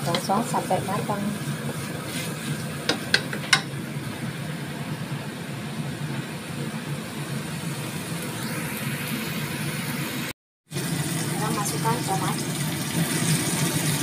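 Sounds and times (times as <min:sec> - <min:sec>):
spice paste frying in wok: 0:00.0 - 0:05.6.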